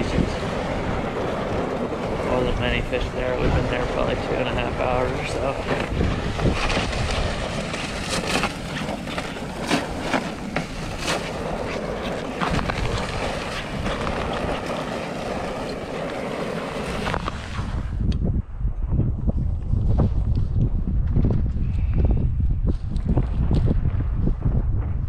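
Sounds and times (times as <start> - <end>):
sled scraping on ice: 0.0 - 18.0
wind buffeting microphone: 0.0 - 25.0
footsteps crunching on snow: 5.7 - 17.8.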